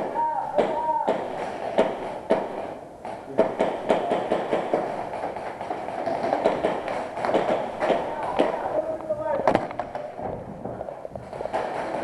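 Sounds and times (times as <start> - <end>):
pistol shots cracking: 3.4 - 8.8.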